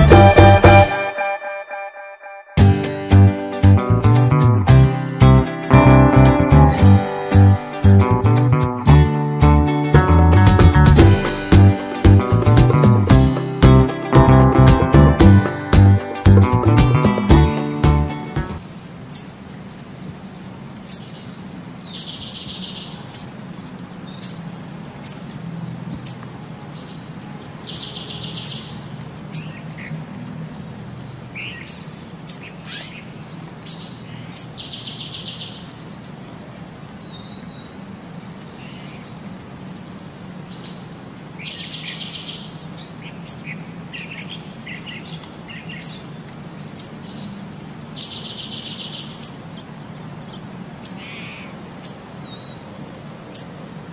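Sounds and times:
short buzzy trill: 0:00.0 - 0:03.3
small birds chirping: 0:17.1 - 0:36.2, 0:36.9 - 0:53.8.

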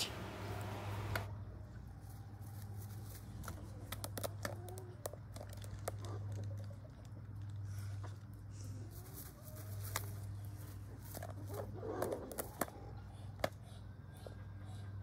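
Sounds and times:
steady low hum: 0:00.0 - 0:04.2
pelican clicks and rustles: 0:02.5 - 0:08.4.

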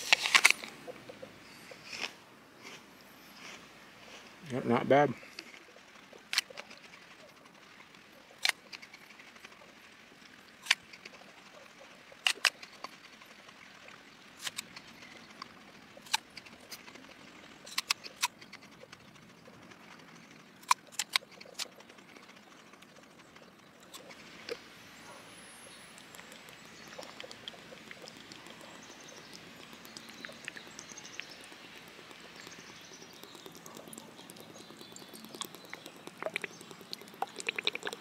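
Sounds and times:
apple crunching being chewed: 0:25.7 - 0:38.0.

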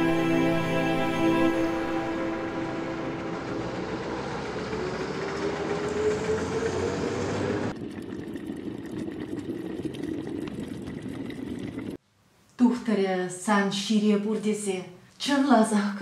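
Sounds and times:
trolleybus motor whine: 0:00.0 - 0:07.7
street traffic: 0:02.0 - 0:07.7.

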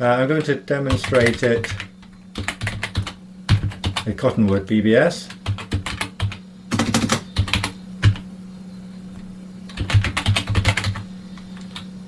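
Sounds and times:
steady low hum: 0:00.0 - 0:12.0
typing on computer keyboard: 0:00.9 - 0:04.1, 0:05.3 - 0:08.2, 0:09.7 - 0:11.0.

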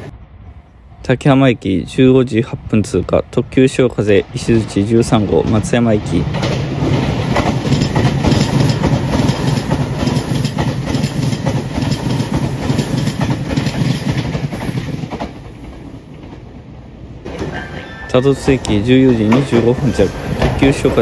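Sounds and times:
train passing with loud rumble: 0:00.0 - 0:21.0
wheels clacking over rail joints: 0:04.6 - 0:16.6, 0:17.3 - 0:21.0.

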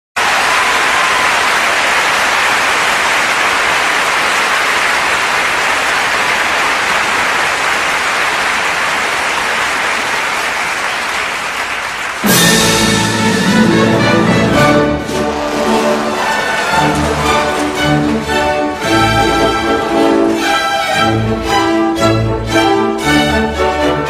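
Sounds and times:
audience applauding: 0:00.2 - 0:21.8
orchestra playing: 0:12.1 - 0:24.0.

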